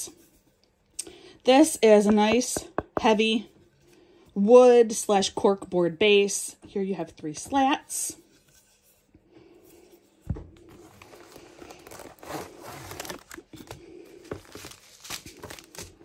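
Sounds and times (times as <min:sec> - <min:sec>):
thump: 0:10.3 - 0:10.5
cellophane packaging crinkling: 0:10.8 - 0:16.0.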